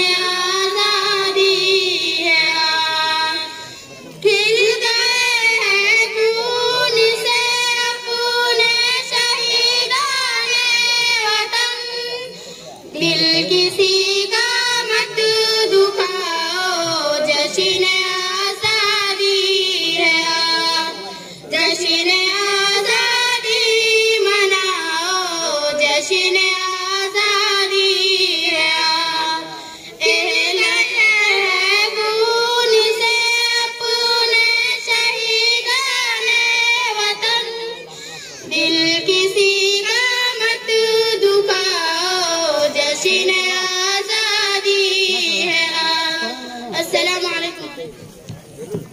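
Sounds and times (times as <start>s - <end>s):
girls singing into microphones: 0.0s - 48.9s
short breaths: 12.3s - 12.9s, 21.1s - 21.5s, 29.6s - 30.0s, 37.8s - 38.4s.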